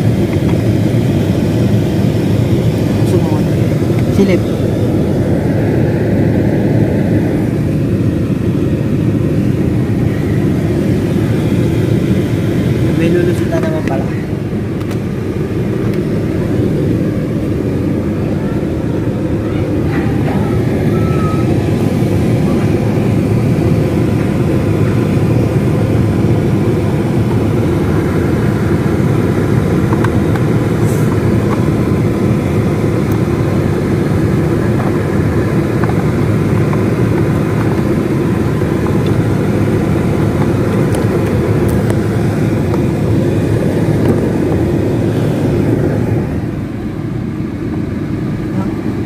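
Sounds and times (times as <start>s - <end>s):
car cabin rumble: 26.6s - 47.0s.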